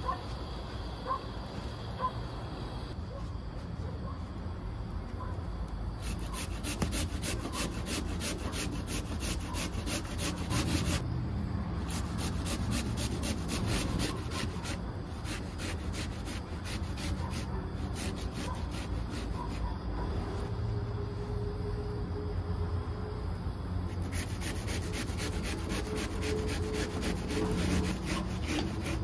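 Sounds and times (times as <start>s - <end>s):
potato grated on metal grater: 6.0s - 11.0s, 11.9s - 19.7s, 24.0s - 29.0s.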